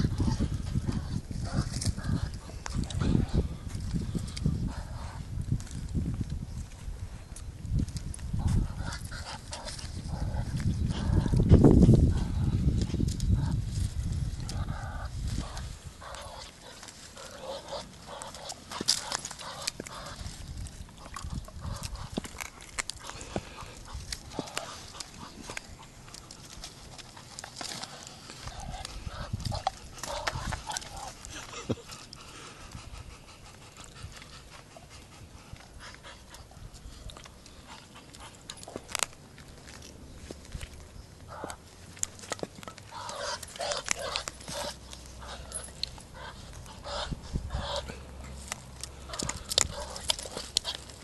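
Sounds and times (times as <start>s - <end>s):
soft scrapes and ticks: 0.0s - 51.0s
dog panting: 14.6s - 38.8s, 42.9s - 51.0s.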